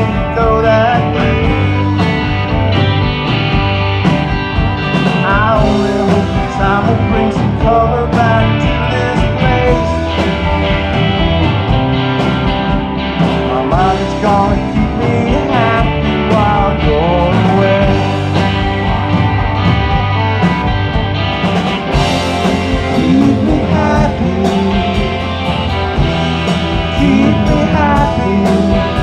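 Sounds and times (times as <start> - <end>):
electric guitar bending notes: 0.0 - 29.0
rock band playing: 0.0 - 29.0.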